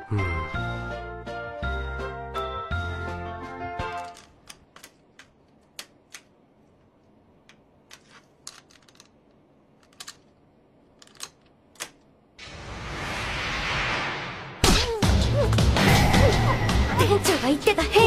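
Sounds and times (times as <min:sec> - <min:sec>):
loud rushing whoosh: 0:12.4 - 0:14.7.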